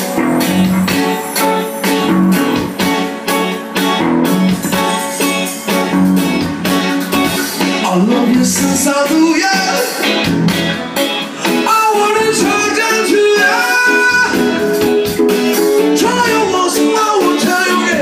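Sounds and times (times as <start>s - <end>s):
live band music: 0.0s - 18.0s
person singing: 7.6s - 10.2s, 11.4s - 18.0s.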